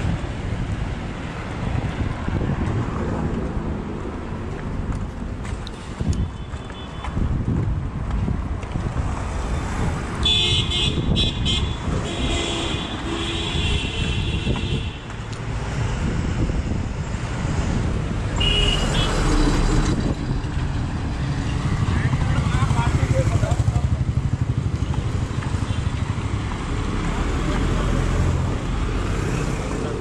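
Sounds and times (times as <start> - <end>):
traffic engines running: 0.0 - 30.0
vehicle horns honking: 6.0 - 7.2, 10.2 - 15.1, 18.4 - 19.4.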